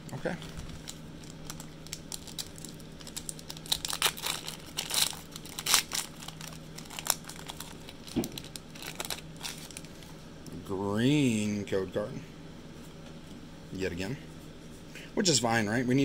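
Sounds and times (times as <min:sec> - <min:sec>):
foil wrapper crinkling and tearing: 0:00.4 - 0:10.2.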